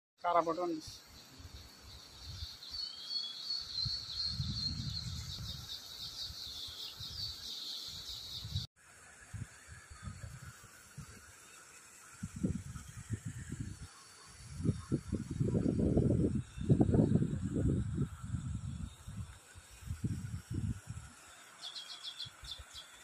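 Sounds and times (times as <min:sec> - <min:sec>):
small birds chirping: 0:00.3 - 0:08.7, 0:21.3 - 0:23.0
wind rumbling on microphone: 0:03.6 - 0:08.7, 0:09.3 - 0:11.3, 0:12.2 - 0:21.2.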